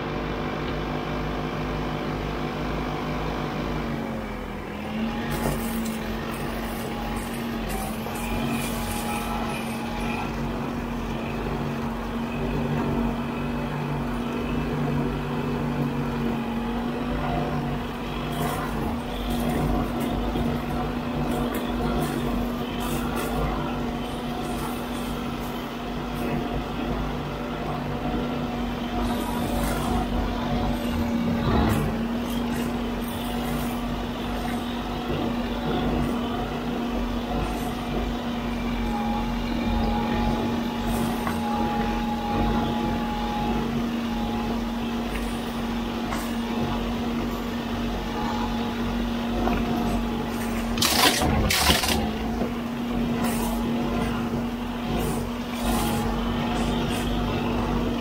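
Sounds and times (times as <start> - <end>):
machine drone: 0.0 - 58.0
loud noisy bursts: 50.7 - 52.3.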